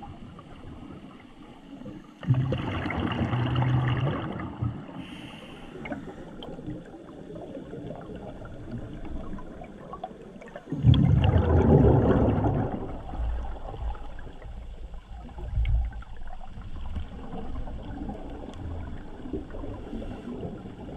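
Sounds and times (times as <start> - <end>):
muffled water noise: 0.0 - 20.9
diver's exhaled bubbles rushing: 2.2 - 5.0, 10.7 - 14.4.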